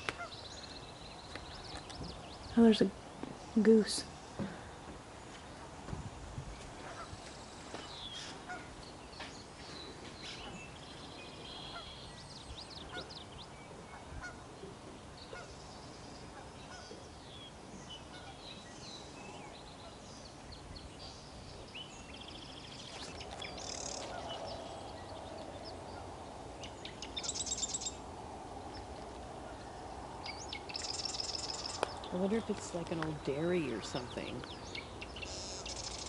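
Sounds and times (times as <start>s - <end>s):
small birds chirping: 0.0s - 36.0s
geese honking: 6.8s - 7.1s, 8.4s - 8.7s, 11.6s - 12.0s, 13.9s - 14.5s, 18.1s - 18.4s, 23.8s - 24.6s.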